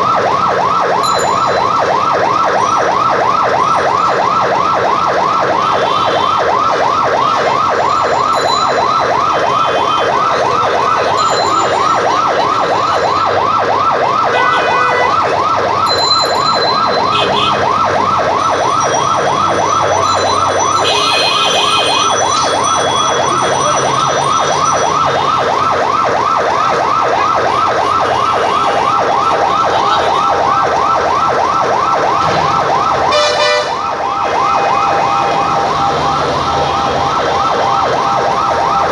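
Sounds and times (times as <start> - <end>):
fire engine siren yelping: 0.0 - 38.9
street noise: 0.0 - 38.9.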